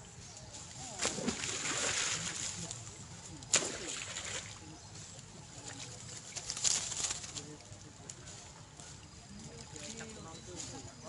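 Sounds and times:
monkeys splashing in water: 0.9 - 10.2.

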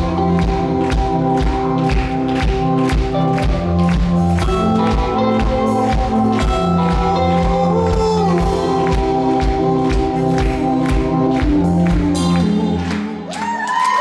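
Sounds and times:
keyboard chords: 0.0 - 13.4
live rock band playing: 0.0 - 13.8.

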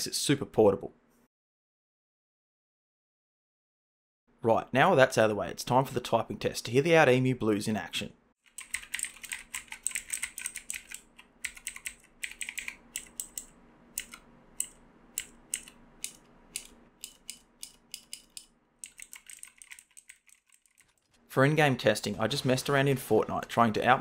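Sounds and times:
mechanical keyboard typing clicks: 8.5 - 21.0.

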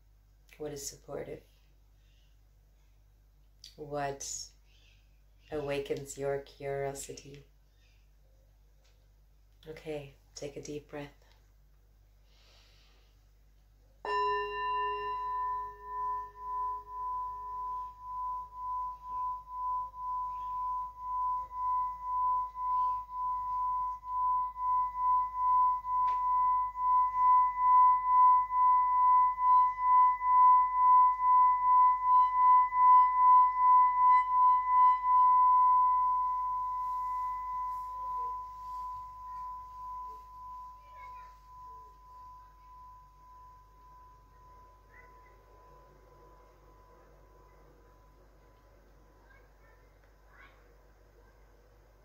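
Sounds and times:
singing bowl ringing tone: 14.0 - 48.6
singing bowl struck with stick: 14.1 - 43.5.

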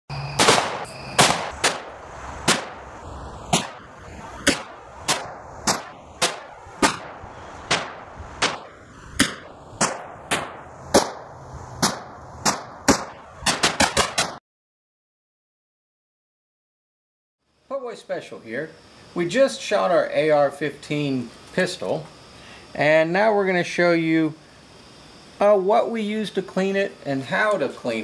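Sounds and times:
gunshots: 0.3 - 2.8, 3.5 - 14.4.

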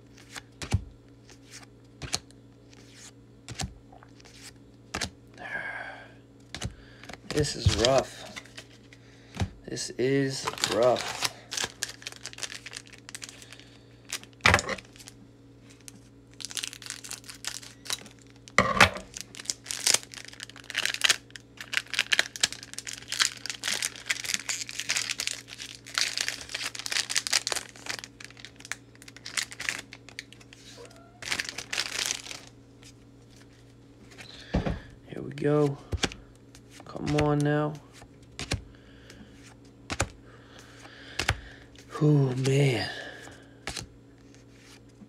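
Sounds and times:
cards flipping with clicks: 6.4 - 8.7, 35.9 - 37.5, 38.4 - 38.6, 39.6 - 40.2
foil wrapper crinkling and tearing: 6.5 - 9.0, 9.8 - 34.2.

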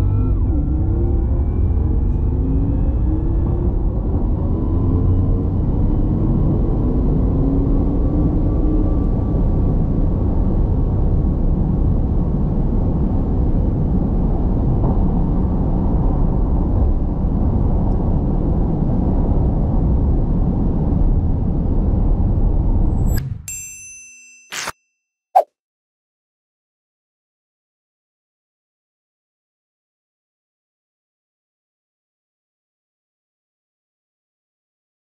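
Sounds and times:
wind and tyre noise: 0.0 - 23.2.

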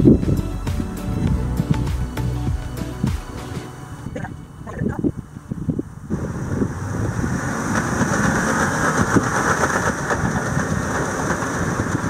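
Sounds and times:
car engine working hard: 5.8 - 12.0
tyres churning through sand: 6.1 - 12.0.

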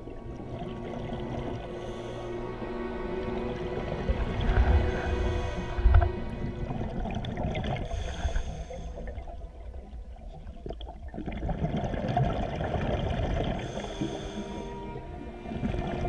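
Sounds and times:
low rumble: 0.0 - 10.7
underwater bubbling and gurgling: 0.0 - 16.0.

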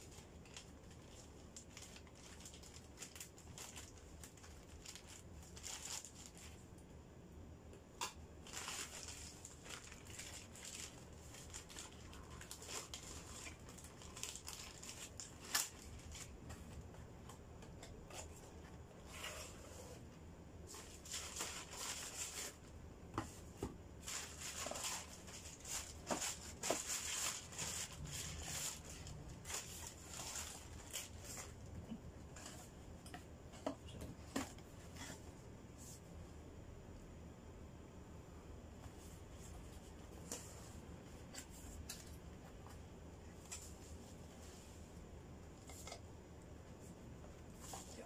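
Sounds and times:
plastic mailer bag crinkling: 0.0 - 6.6, 8.4 - 16.5, 24.0 - 31.6.

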